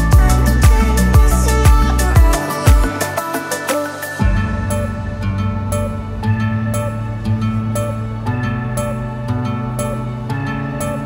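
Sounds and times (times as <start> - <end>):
electronic music with bass line: 0.0 - 11.0.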